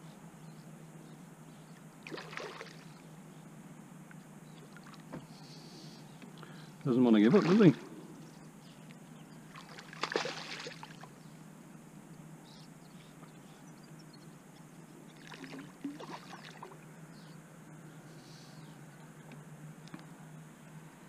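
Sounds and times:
fish splashing in water: 0:02.1 - 0:02.9, 0:09.5 - 0:11.1, 0:15.2 - 0:16.8.

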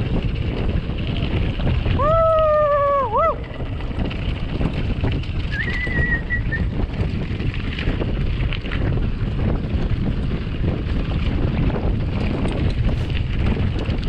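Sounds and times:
bike rolling on gravel: 0:00.0 - 0:14.0
wind buffeting microphone: 0:00.0 - 0:14.0
high whistling tone: 0:05.5 - 0:06.7.

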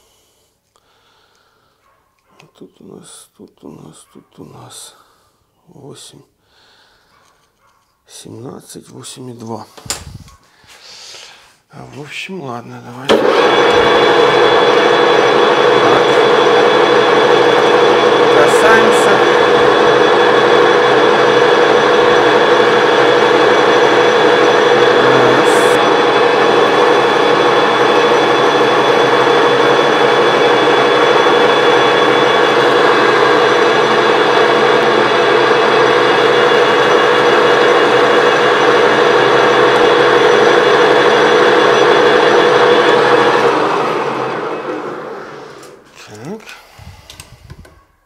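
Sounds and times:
lathe running: 0:13.1 - 0:45.8.

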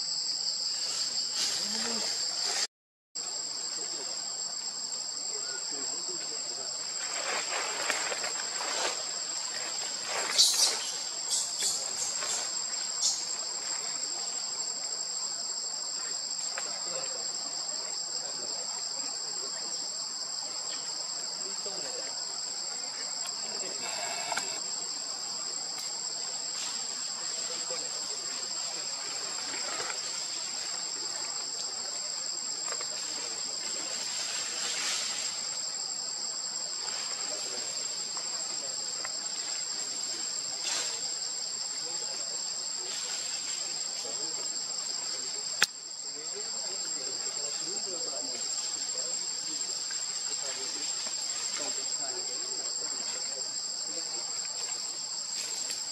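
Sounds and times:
high insect whine: 0:00.0 - 0:55.9
insects buzzing: 0:00.0 - 0:55.9
faint pitched call: 0:23.7 - 0:24.6.

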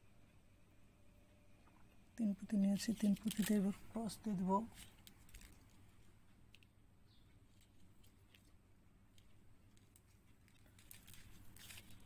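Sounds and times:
plastic beads clicking: 0:02.8 - 0:03.8, 0:09.1 - 0:12.0.

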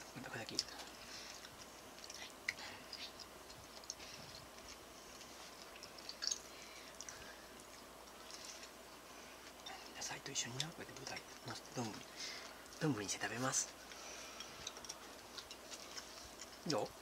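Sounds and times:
person chewing food: 0:00.0 - 0:12.9, 0:13.7 - 0:17.0
small mouth clicks: 0:00.5 - 0:04.8.

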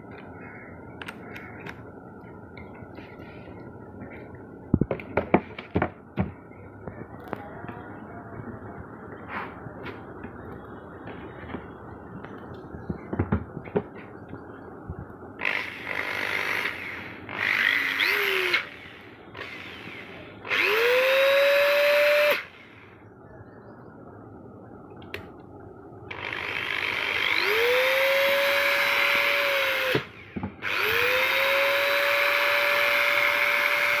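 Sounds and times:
electric screwdriver motor whining: 0:15.5 - 0:22.4, 0:26.1 - 0:34.0.

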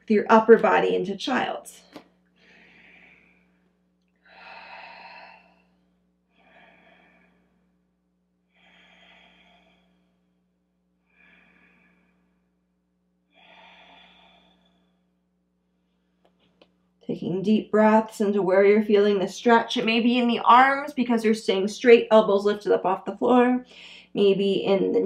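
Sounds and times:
steady low hum: 0:00.0 - 0:25.0
woman breathing deeply: 0:02.4 - 0:16.4.

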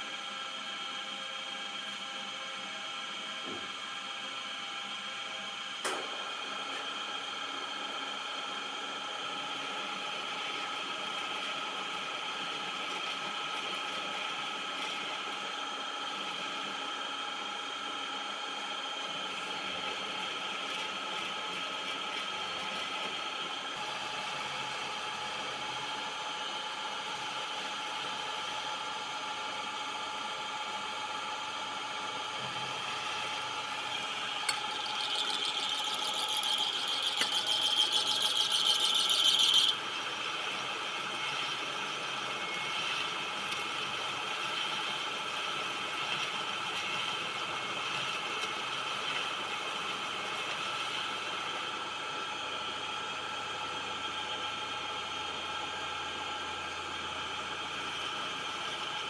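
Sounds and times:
metal lathe whine: 0:00.0 - 0:59.0
high-pitched cutting squeal: 0:34.5 - 0:39.8.

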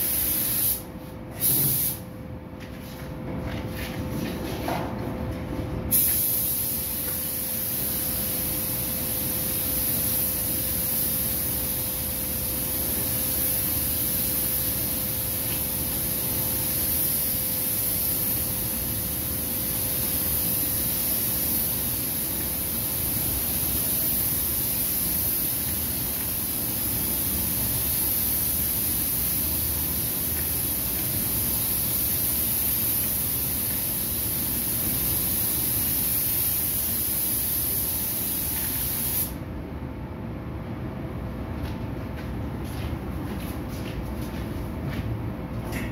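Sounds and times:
paint spray gun hissing: 0:00.0 - 0:00.8, 0:01.4 - 0:02.0, 0:05.9 - 0:39.4
faint constant hum: 0:00.0 - 0:45.9.

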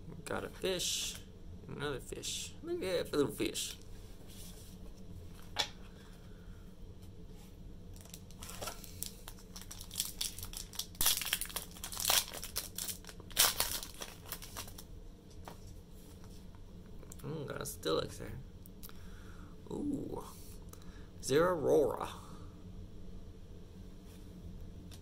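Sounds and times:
foil wrapper tearing and crinkling: 0:08.0 - 0:14.9.

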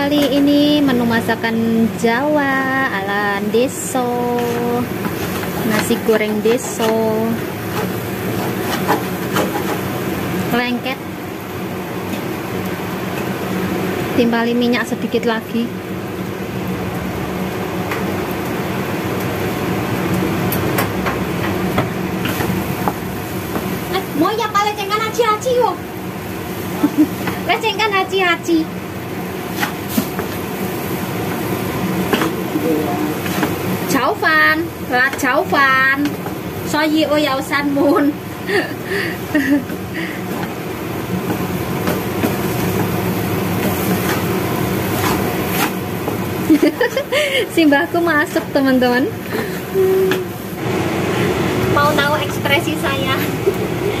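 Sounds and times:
rice sizzling in a pan: 0:00.0 - 0:54.0
wooden spatula scraping frying pan: 0:04.3 - 0:10.0, 0:29.4 - 0:30.5, 0:41.2 - 0:46.2.

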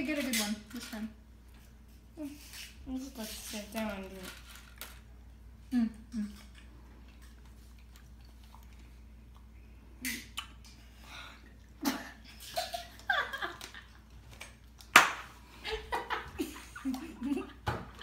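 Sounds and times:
children laughing: 0:11.8 - 0:14.0.

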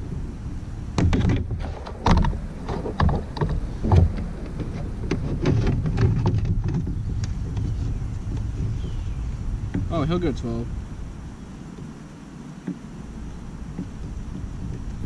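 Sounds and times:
steady low rumble: 0:00.0 - 0:15.0
hollow knocks on plastic kayak: 0:01.0 - 0:10.1, 0:12.6 - 0:12.9, 0:13.6 - 0:15.0.

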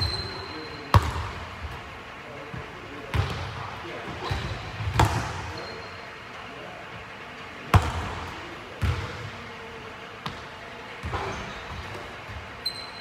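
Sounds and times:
basketball bouncing on gym floor: 0:00.0 - 0:01.8, 0:02.5 - 0:05.7, 0:07.7 - 0:09.4, 0:10.2 - 0:12.9.

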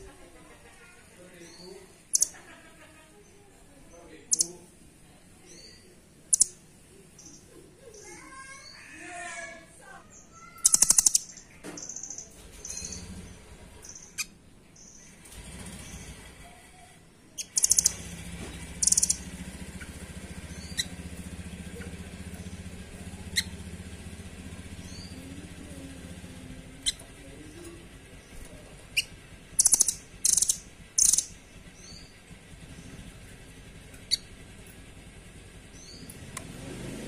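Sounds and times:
songbird chirping and trilling: 0:00.2 - 0:04.8, 0:05.4 - 0:36.6
low steady hum: 0:16.7 - 0:36.5.

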